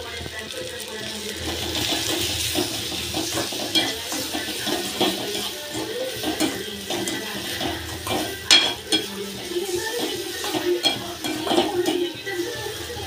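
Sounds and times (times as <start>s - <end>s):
food sizzling in oil: 0.0s - 13.0s
metal spoon scraping a pan: 1.2s - 13.0s.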